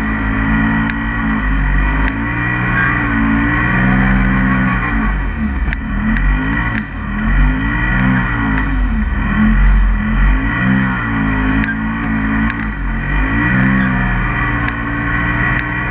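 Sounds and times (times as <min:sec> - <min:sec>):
engine revving: 0:00.0 - 0:15.9
light ticks: 0:11.6 - 0:12.7.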